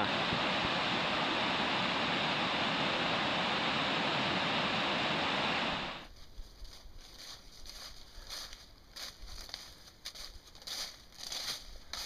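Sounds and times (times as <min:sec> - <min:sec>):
waterfall rushing: 0:00.0 - 0:06.0.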